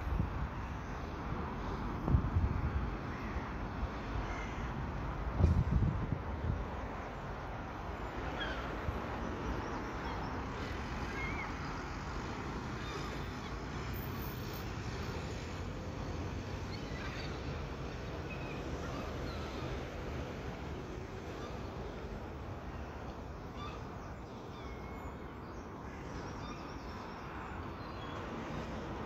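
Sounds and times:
road traffic hum: 0.0 - 29.0.

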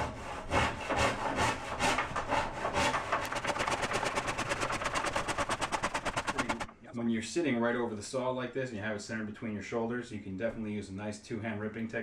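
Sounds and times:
hand saw rasping through wood: 0.0 - 6.7.

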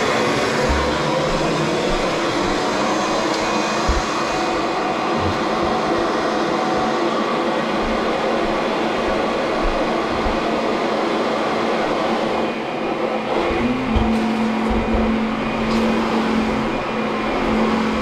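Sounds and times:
vacuum cleaner running: 0.0 - 18.0
low bumps: 0.6 - 6.0.

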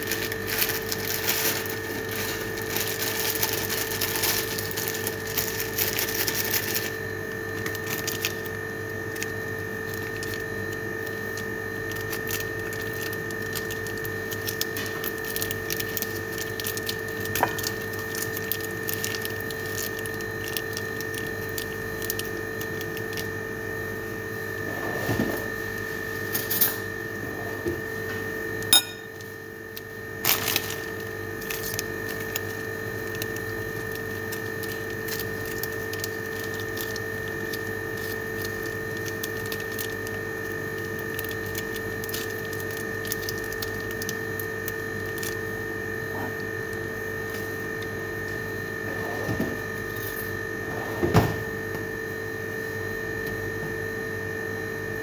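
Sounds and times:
plastic sachets rustling and clicking: 0.0 - 23.4, 29.2 - 45.5
high-pitched machine hum: 0.0 - 55.0.

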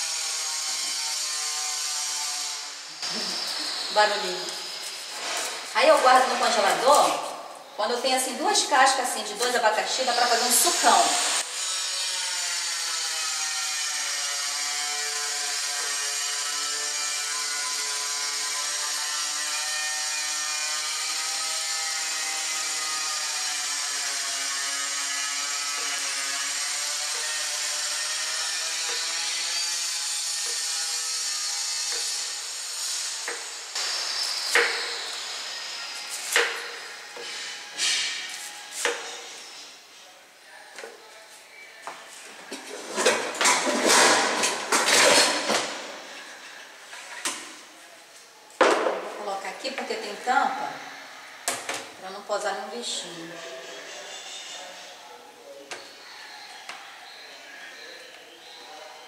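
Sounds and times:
power tool whirring: 0.0 - 7.8, 10.0 - 39.8.

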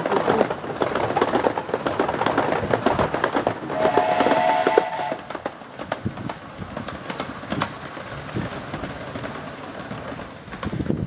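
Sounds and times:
train clattering along track: 0.0 - 11.0
steam locomotive whistle: 3.7 - 5.3.

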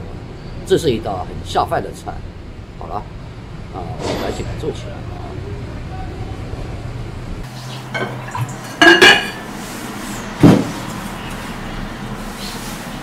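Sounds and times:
glass lid clinking on jar rim: 8.8 - 9.4.

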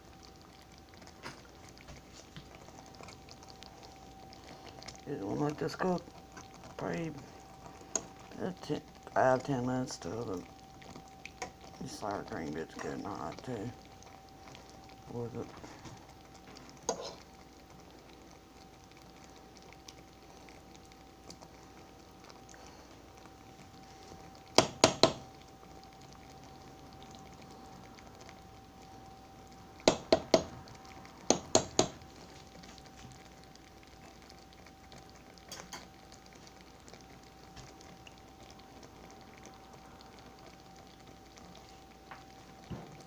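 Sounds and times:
faint hum: 0.0 - 43.0
sauce simmering in skillet: 0.0 - 43.0
sharp knocks: 24.6 - 25.2.

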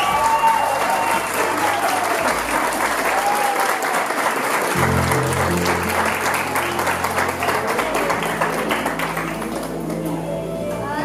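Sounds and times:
audience applause: 0.0 - 10.2
recorded waltz music: 4.7 - 11.0.

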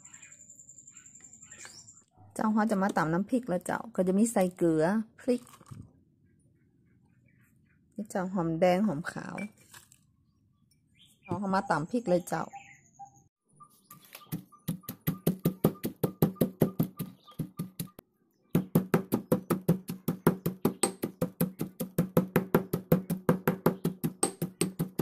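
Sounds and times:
pestle pounding in stone mortar: 14.3 - 18.0, 18.6 - 25.0.

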